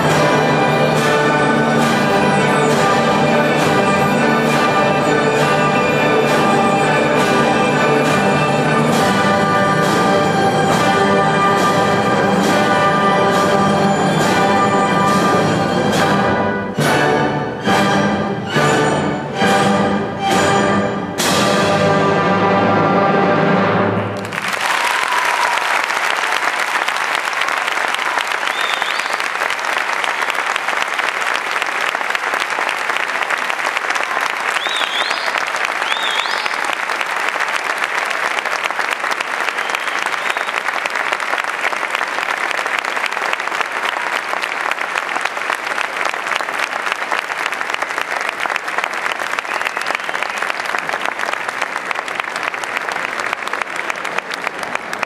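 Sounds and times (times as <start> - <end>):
audience applauding: 24.2 - 55.0.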